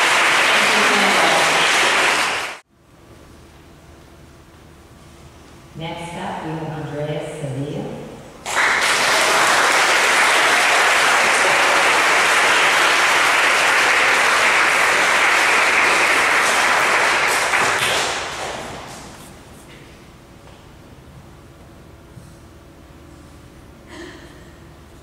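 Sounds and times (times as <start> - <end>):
audience applauding: 0.0 - 2.6, 8.4 - 19.1.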